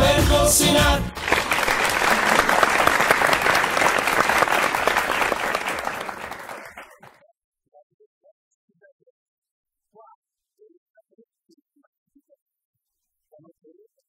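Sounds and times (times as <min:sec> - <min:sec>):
audience applauding: 0:01.1 - 0:07.2.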